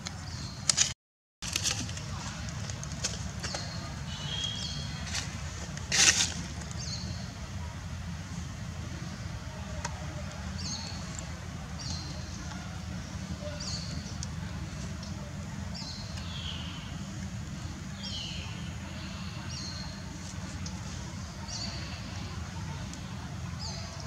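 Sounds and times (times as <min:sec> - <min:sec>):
bird chirping: 0:03.4 - 0:05.0.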